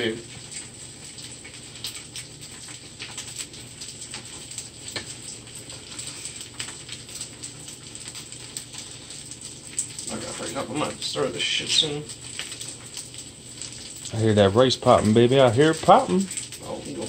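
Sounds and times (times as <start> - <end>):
rice sizzling and popping in skillet: 0.0 - 17.0.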